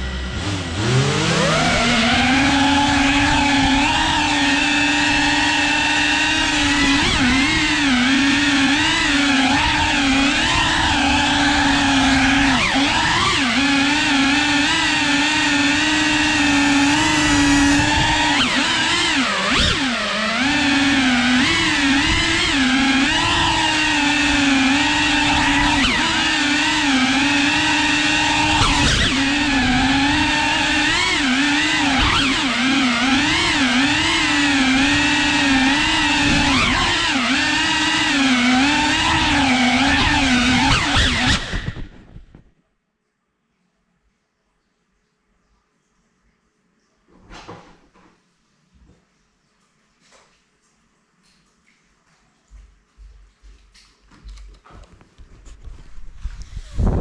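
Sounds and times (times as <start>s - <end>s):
drone motors whining: 0.0s - 42.5s.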